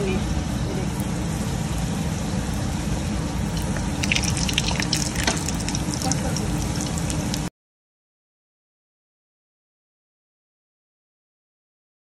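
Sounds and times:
deep-frying sizzle in oil: 0.0s - 7.5s
sharp crackling pops: 3.6s - 7.5s.

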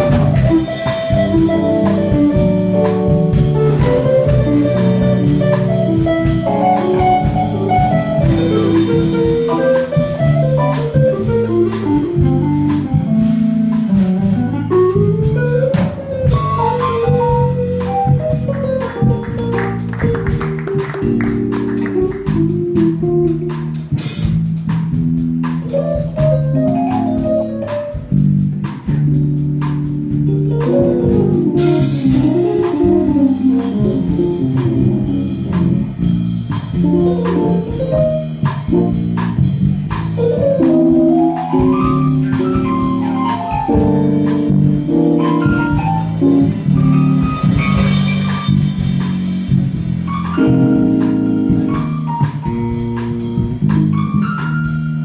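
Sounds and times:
jazz band playing live: 0.0s - 55.0s.

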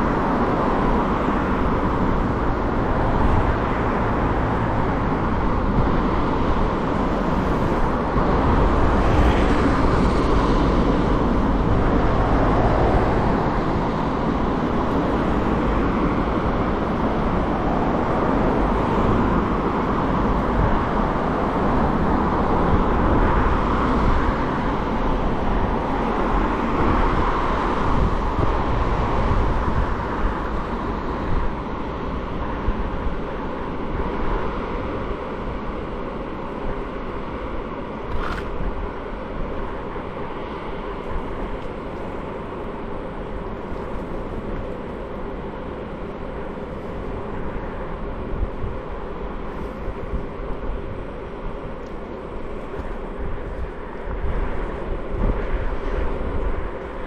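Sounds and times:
road noise: 0.0s - 57.0s.

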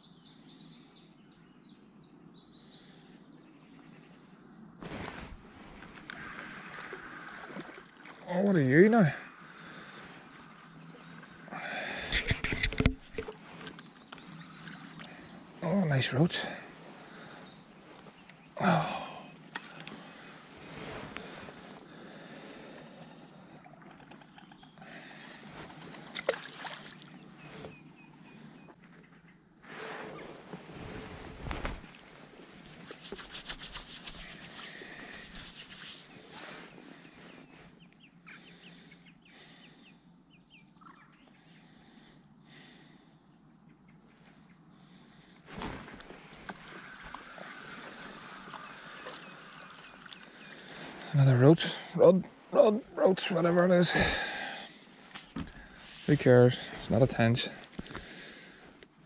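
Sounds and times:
faint outdoor background noise: 0.0s - 59.0s
fish splashing into water: 26.1s - 27.1s.

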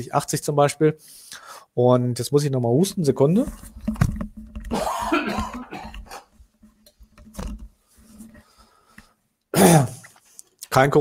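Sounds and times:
man coughing: 4.7s - 6.3s, 9.5s - 10.0s.

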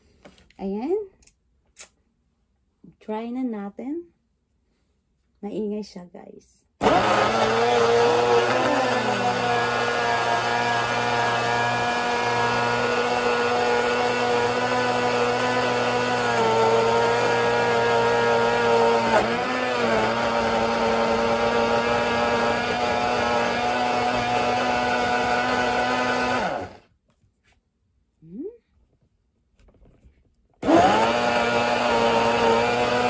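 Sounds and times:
blender motor whine: 6.8s - 26.8s, 30.6s - 33.0s.

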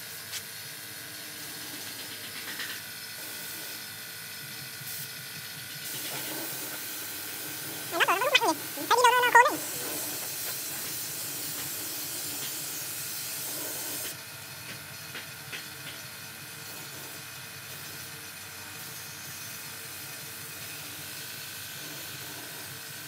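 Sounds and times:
loud warbling tone: 7.9s - 9.6s.

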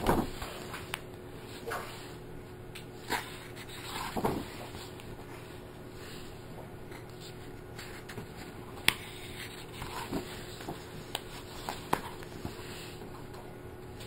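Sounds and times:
faint steady hum: 0.0s - 14.0s
paper rustling: 6.9s - 13.0s.

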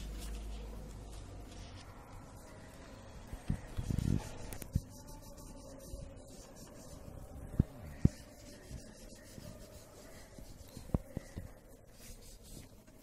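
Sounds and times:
crayon rubbing on paper: 3.6s - 13.0s.

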